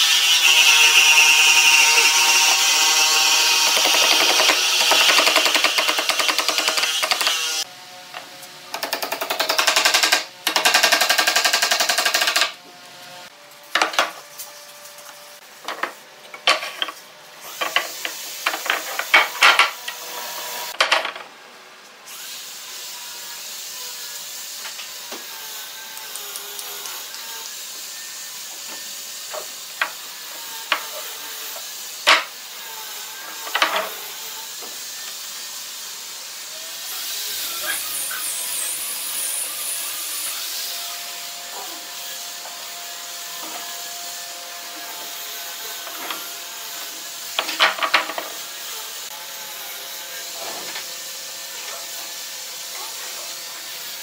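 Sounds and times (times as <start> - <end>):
power tool buzzing: 0.0 - 7.7, 22.1 - 54.0.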